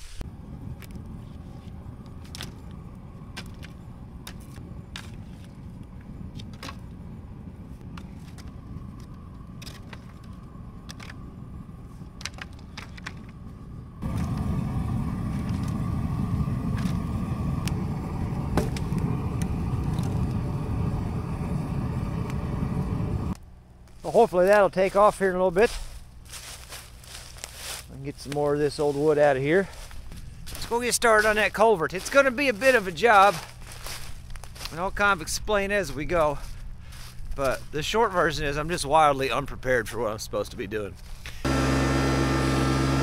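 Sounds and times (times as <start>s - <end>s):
diesel tractor engine idling: 41.4s - 43.0s.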